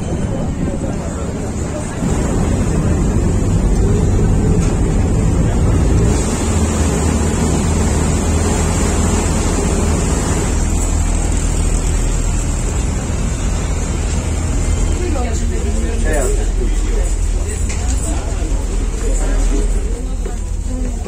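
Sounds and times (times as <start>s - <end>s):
wind rumble on microphone: 0.0s - 6.2s
ferry engines droning: 0.0s - 21.0s
water noise: 0.0s - 21.0s.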